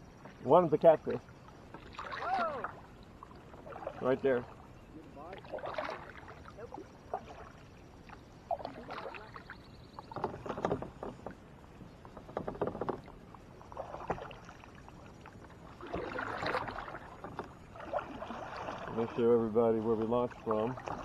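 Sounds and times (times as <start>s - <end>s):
kayak paddle splashing: 0.0s - 21.0s.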